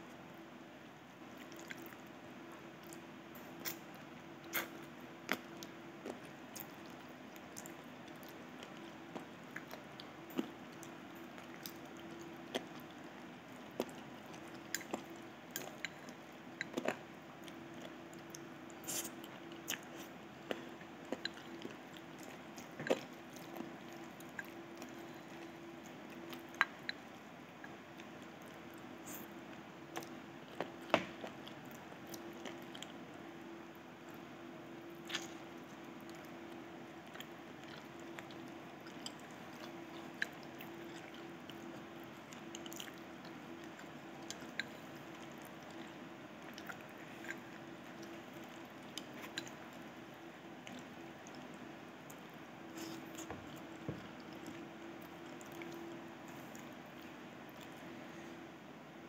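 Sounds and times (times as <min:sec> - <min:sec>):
person chewing food: 0:01.3 - 0:58.4.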